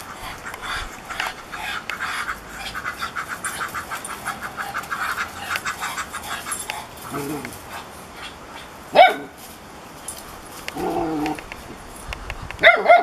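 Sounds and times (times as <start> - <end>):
duck calling rapidly: 0.0 - 6.9.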